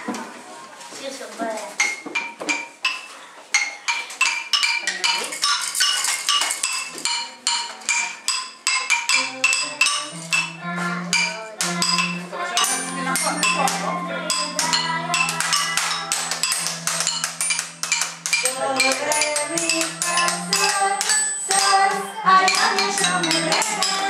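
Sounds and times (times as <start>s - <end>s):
toy metal xylophone notes: 1.8s - 24.0s
low steady tones: 6.7s - 24.0s.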